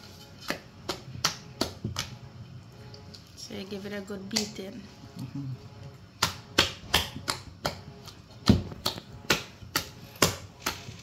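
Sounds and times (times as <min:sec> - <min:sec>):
hand slapping wet batter: 0:00.4 - 0:02.2, 0:04.2 - 0:04.6, 0:06.1 - 0:11.0.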